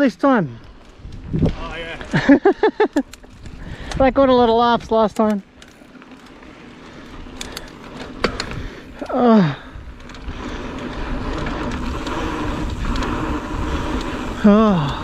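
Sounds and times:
wind and tyre noise: 0:00.0 - 0:15.0
person crying out: 0:09.0 - 0:09.7, 0:14.4 - 0:15.0.

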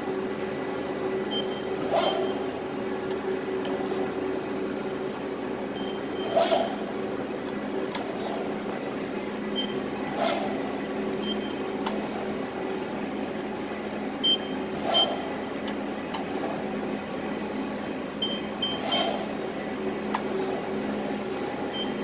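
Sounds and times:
hydraulic pump humming: 0:00.0 - 0:22.0.

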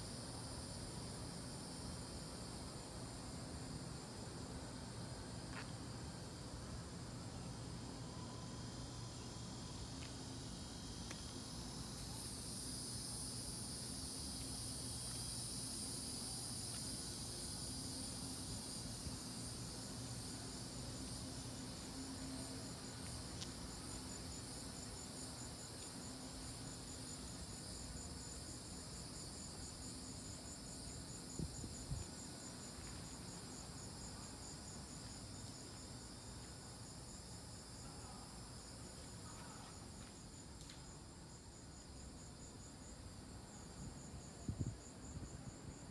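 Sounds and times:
insects buzzing: 0:00.0 - 0:45.9
insects trilling: 0:00.0 - 0:45.9.

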